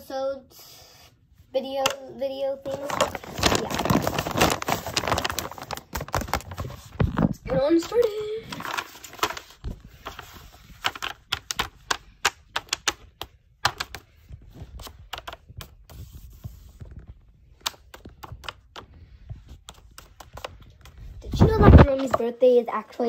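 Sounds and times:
paper crinkling: 2.7s - 13.0s.

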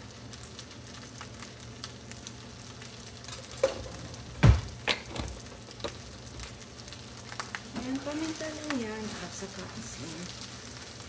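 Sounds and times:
rice sizzling in a frying pan: 0.0s - 11.0s
utensil knocks: 3.6s - 6.0s.

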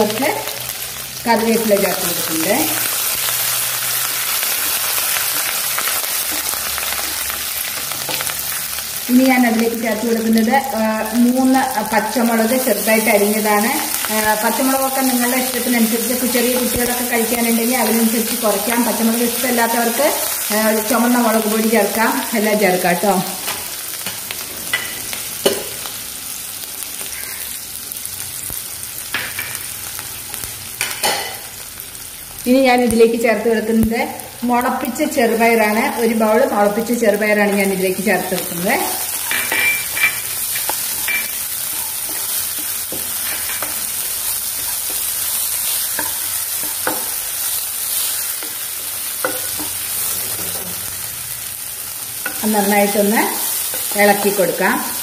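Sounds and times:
food sizzling in oil: 0.0s - 55.0s
spatula scraping and tapping a pan: 45.9s - 47.2s, 49.2s - 50.8s.

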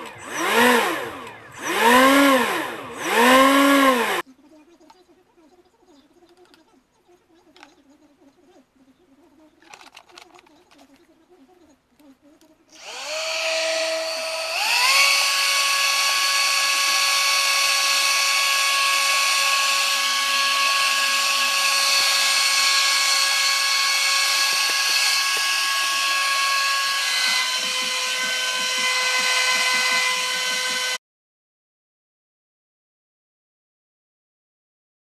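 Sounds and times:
vacuum cleaner motor whine: 0.0s - 4.2s, 12.7s - 31.0s.

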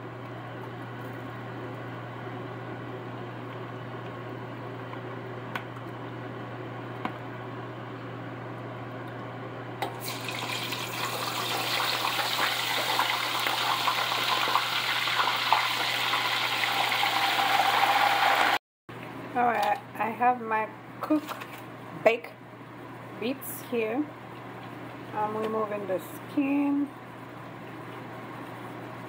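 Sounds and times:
plantain frying in hot oil: 9.9s - 18.6s.

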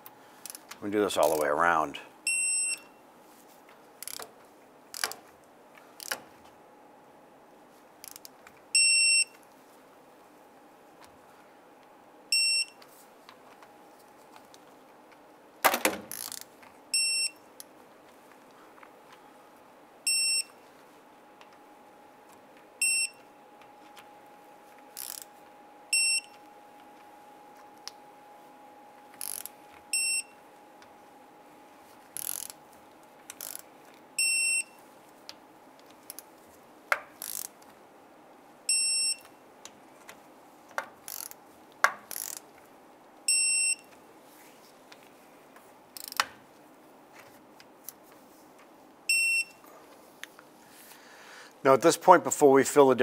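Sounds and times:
metallic clicks of wrench: 4.0s - 4.3s, 8.0s - 8.3s, 16.1s - 16.5s, 25.0s - 25.3s, 29.2s - 29.5s, 32.2s - 32.6s, 33.3s - 33.6s, 37.2s - 37.6s, 41.0s - 41.4s, 42.1s - 42.4s, 46.0s - 46.3s.

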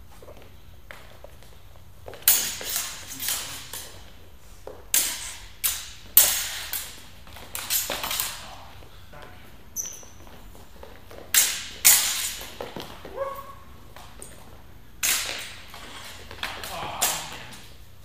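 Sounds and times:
training swords clashing: 2.1s - 4.1s, 4.9s - 10.2s, 10.8s - 14.3s, 15.0s - 17.8s.

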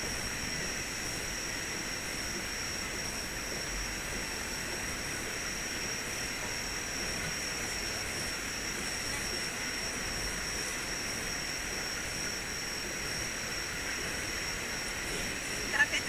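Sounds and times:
high-pitched whine: 0.0s - 16.0s.

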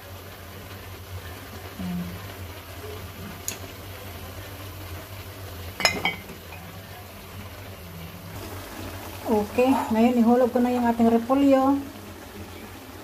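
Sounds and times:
vegetables simmering in sauce: 0.0s - 13.0s
utensil clinking on metal pot: 5.8s - 6.4s.

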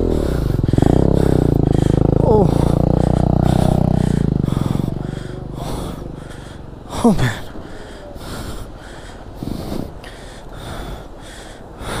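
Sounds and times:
motorcycle engine revving hard: 0.0s - 7.0s.

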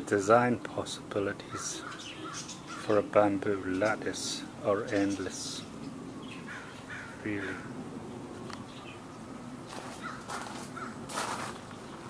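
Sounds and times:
birds calling: 0.0s - 12.0s
footsteps on gravel: 9.6s - 11.8s.

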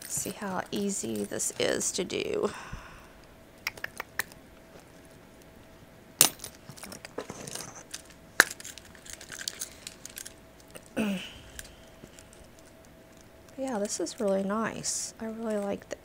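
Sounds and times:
metal keys clinking: 0.0s - 2.4s, 6.2s - 15.9s
rustling: 4.2s - 15.7s.

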